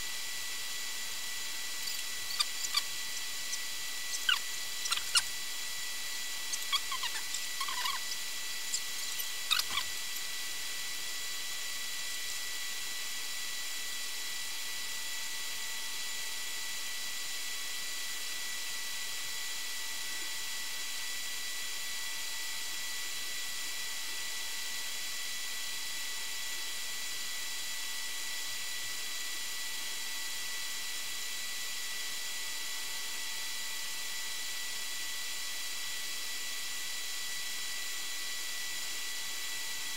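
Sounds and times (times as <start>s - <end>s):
short high squeaks: 1.8s - 5.3s, 6.5s - 10.2s.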